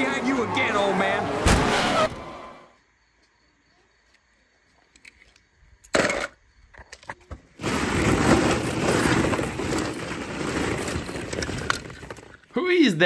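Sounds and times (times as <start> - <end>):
plastic balls clattering: 6.0 - 12.5.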